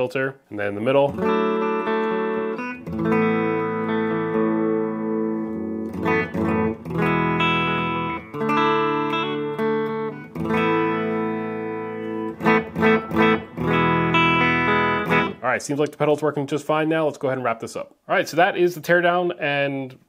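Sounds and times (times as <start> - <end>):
electric guitar chords: 1.1 - 15.4.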